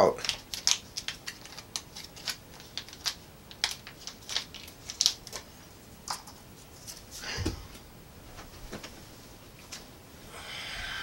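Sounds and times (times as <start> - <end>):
packet crackling as opened: 0.2 - 5.5.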